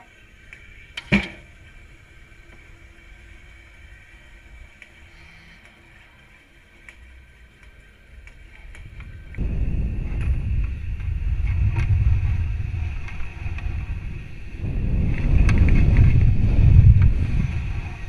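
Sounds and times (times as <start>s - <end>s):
faint clicks: 4.7s - 9.4s
rocket low rumbling: 8.8s - 18.0s.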